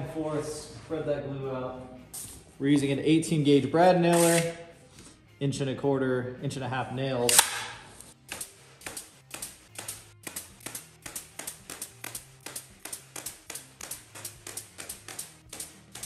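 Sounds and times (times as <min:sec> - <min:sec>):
brad nailer firing sharp clacks: 0:04.1 - 0:04.6, 0:07.3 - 0:16.0.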